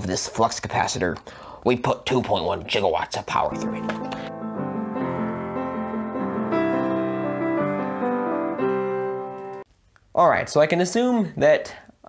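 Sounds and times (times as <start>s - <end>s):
upright piano chords: 3.5s - 9.7s.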